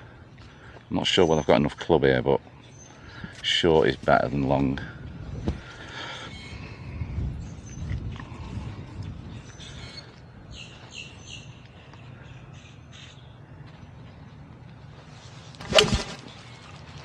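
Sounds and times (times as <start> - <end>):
birds calling: 0.0 - 4.7, 5.4 - 17.0
golf club striking ball: 15.6 - 16.4.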